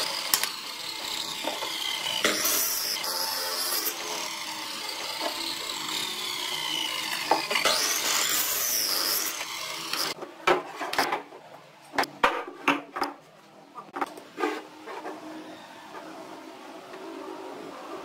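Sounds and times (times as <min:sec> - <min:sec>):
saw cutting wood: 0:00.0 - 0:10.2.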